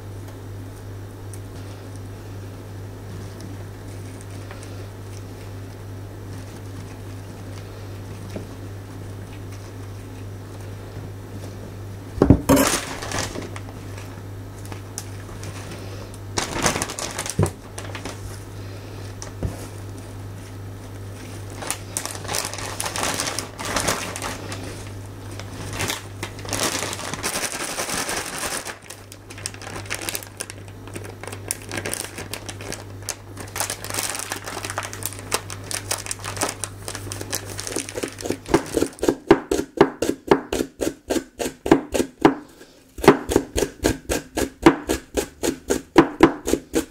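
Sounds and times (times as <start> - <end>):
plastic bag crinkling: 12.5 - 39.3
knife chopping on wooden board: 38.5 - 46.9.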